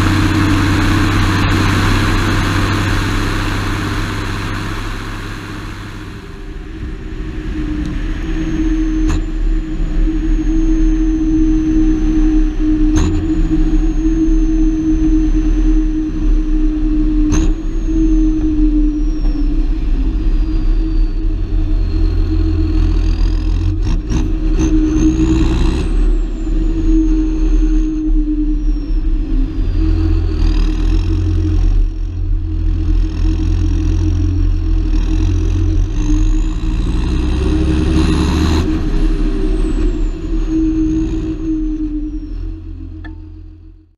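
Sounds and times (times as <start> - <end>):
thin high whine: 0.0 - 23.8
tractor diesel engine running: 0.0 - 43.9.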